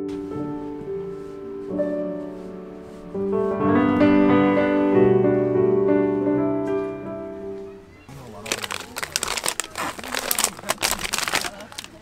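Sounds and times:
slow piano chords: 0:00.0 - 0:08.1.

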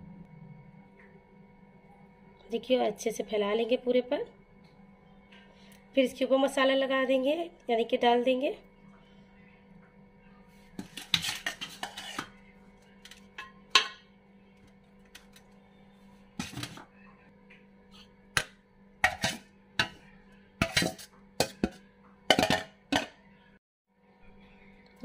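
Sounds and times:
faint steady hum: 0:00.0 - 0:25.0
metal spoon scraping cooking pot: 0:10.8 - 0:14.0, 0:16.4 - 0:16.8, 0:19.0 - 0:20.0, 0:20.6 - 0:23.1.

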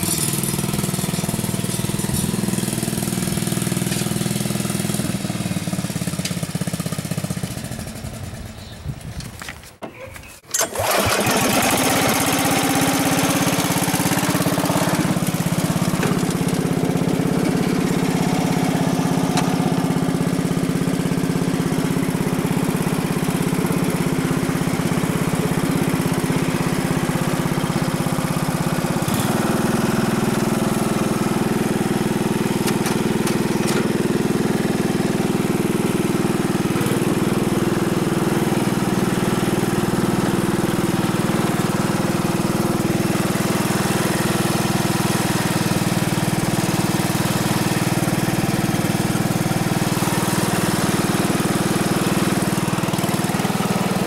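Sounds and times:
lawn tractor engine running: 0:00.0 - 0:54.0.

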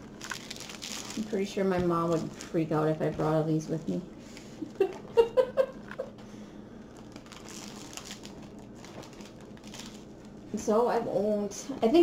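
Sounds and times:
plastic film crinkling: 0:00.0 - 0:04.0, 0:06.8 - 0:10.5.

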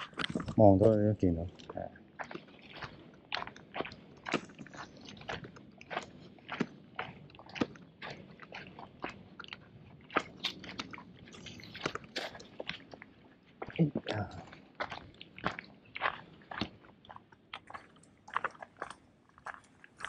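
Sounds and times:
footsteps crunching on dirt trail: 0:10.1 - 0:20.0.

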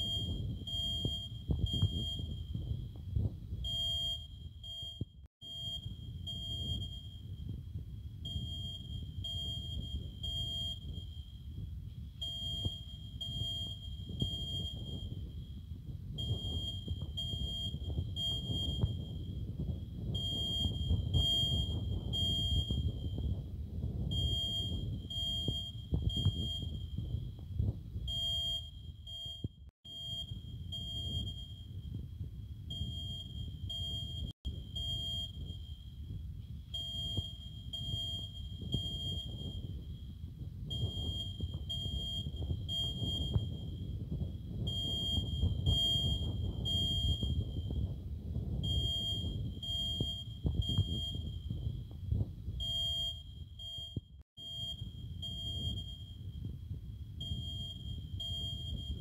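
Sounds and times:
fire alarm beeping: 0:00.0 - 0:23.4, 0:24.0 - 0:27.4, 0:28.0 - 0:47.9, 0:48.6 - 0:52.0, 0:52.6 - 0:56.5, 0:57.2 - 0:59.0.

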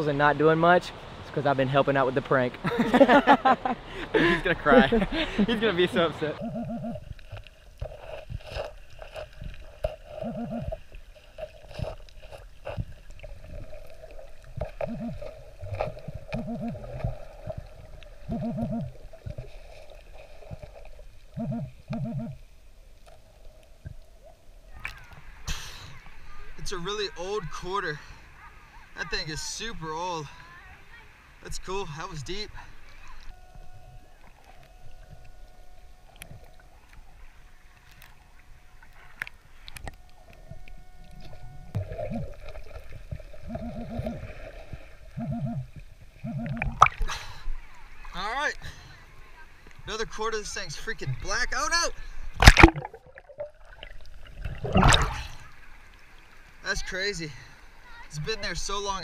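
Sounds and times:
low water rumble: 0:00.0 - 0:59.0
warbling electronic alarm tone: 0:06.4 - 0:07.0, 0:10.2 - 0:10.8, 0:14.8 - 0:15.2, 0:16.4 - 0:16.9, 0:18.3 - 0:19.0, 0:21.4 - 0:22.4, 0:43.5 - 0:44.2, 0:45.2 - 0:46.9.

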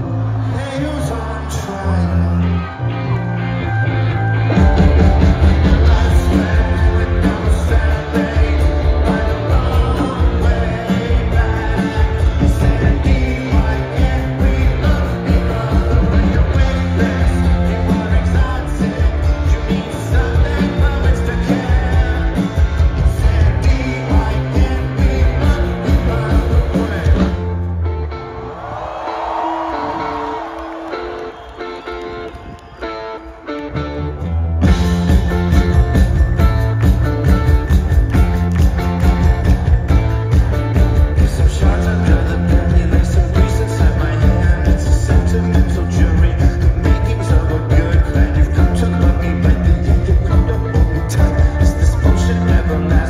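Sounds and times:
bass guitar: 0:00.0 - 0:53.0
drums: 0:00.0 - 0:53.0
electric guitars: 0:00.0 - 0:53.0
person singing: 0:04.5 - 0:27.6, 0:34.6 - 0:53.0.

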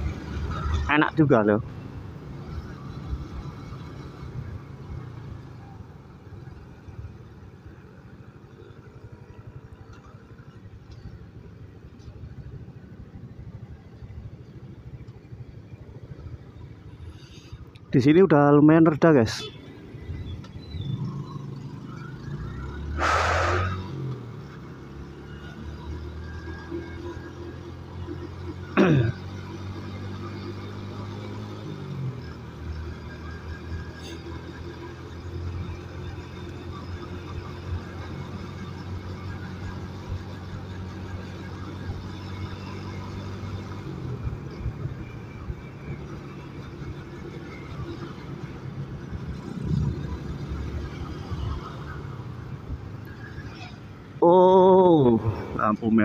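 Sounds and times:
loud rushing hiss: 0:23.0 - 0:23.8.

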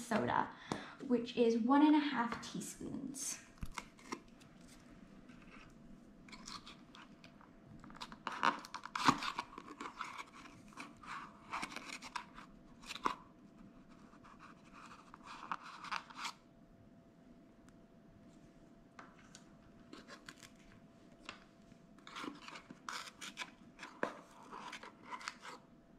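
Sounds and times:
rustling and crinkling: 0:03.6 - 0:16.4, 0:18.3 - 0:25.7.

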